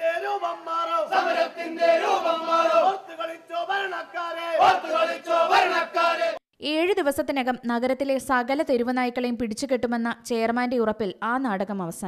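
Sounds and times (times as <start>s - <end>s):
men shouting slogans: 0.0s - 6.4s.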